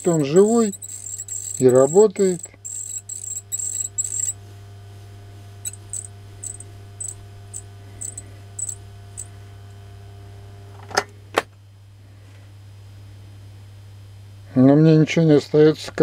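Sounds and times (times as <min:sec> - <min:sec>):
light ticking of motor: 0:00.0 - 0:04.4, 0:05.6 - 0:09.8
electric motor humming: 0:00.0 - 0:10.7
sharp clicks: 0:05.7 - 0:09.3.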